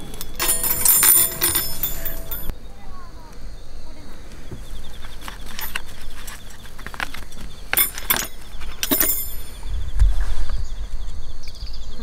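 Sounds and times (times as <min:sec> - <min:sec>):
metal skewers clinking: 0:00.0 - 0:02.5, 0:07.7 - 0:09.6.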